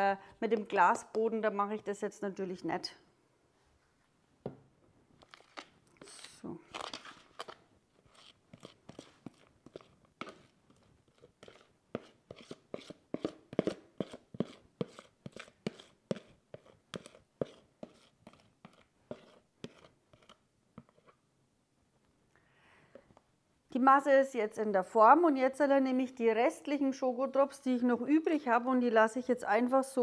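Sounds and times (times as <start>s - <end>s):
spoon scraping batter from bowl: 5.2s - 21.2s.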